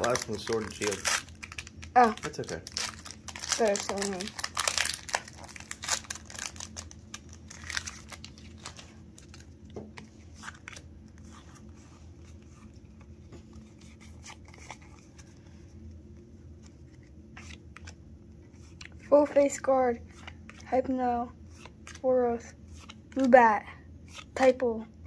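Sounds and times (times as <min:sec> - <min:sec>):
foil wrapper tearing and crinkling: 0:00.0 - 0:09.5
cards rustling and clicking: 0:00.0 - 0:15.5, 0:16.6 - 0:24.7
steady low hum: 0:00.0 - 0:25.0.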